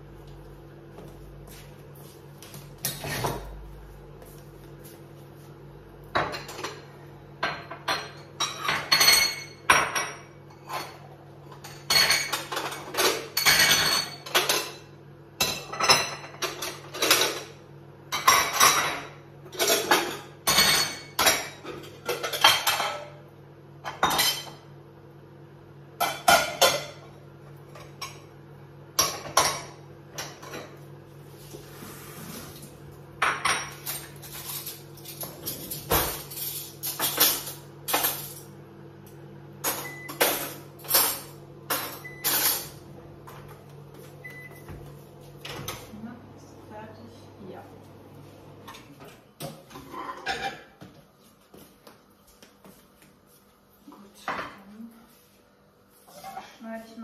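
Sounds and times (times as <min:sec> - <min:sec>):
dishes and cutlery clattering: 0:02.8 - 0:03.6, 0:06.1 - 0:23.2, 0:33.2 - 0:38.5, 0:39.6 - 0:43.6, 0:48.7 - 0:50.9.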